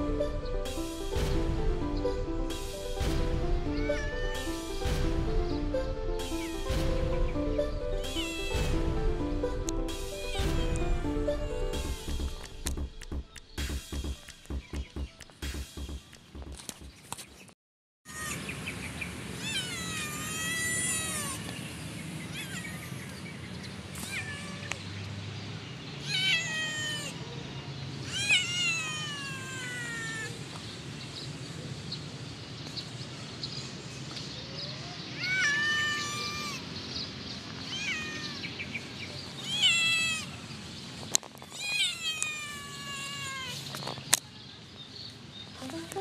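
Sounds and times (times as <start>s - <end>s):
kitten meowing: 3.8s - 4.5s, 8.2s - 8.6s, 10.2s - 10.7s, 19.4s - 21.4s, 22.3s - 23.0s, 24.0s - 24.8s, 26.0s - 27.2s, 28.1s - 30.4s, 35.2s - 36.6s, 37.7s - 38.4s, 39.4s - 40.3s, 41.6s - 43.6s.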